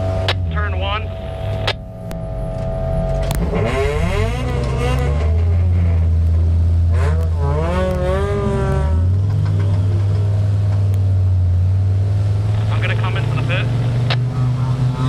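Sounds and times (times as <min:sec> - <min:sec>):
wavering gliding high tones: 0:00.0 - 0:04.8
race car engine droning: 0:00.0 - 0:15.0.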